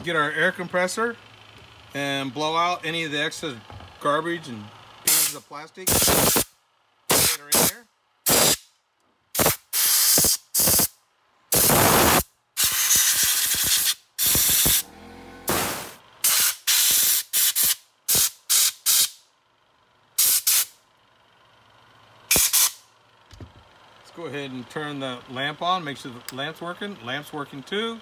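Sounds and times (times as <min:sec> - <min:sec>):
compressed air gun blasts: 0:05.1 - 0:06.5, 0:07.1 - 0:08.7, 0:09.3 - 0:10.9, 0:11.5 - 0:14.8, 0:15.5 - 0:19.2, 0:20.2 - 0:20.7, 0:22.3 - 0:22.8.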